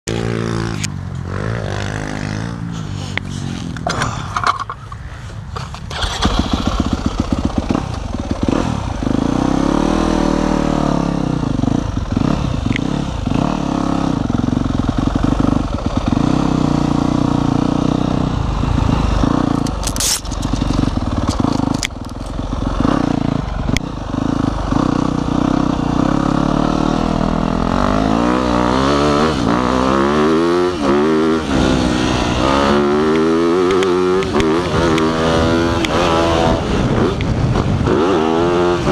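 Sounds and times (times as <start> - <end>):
dirt bike engine revving: 0.1 - 4.2, 5.9 - 38.9
dirt bike engine idling: 5.8 - 9.6, 11.1 - 26.6.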